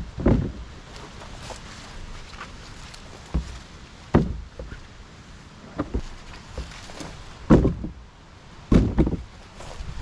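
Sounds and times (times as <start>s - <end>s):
wood thumping into plastic sled: 0.1s - 0.6s, 3.2s - 4.8s, 5.7s - 8.0s, 8.7s - 9.3s
footsteps in brush: 0.4s - 4.9s, 5.8s - 7.8s, 9.1s - 10.0s.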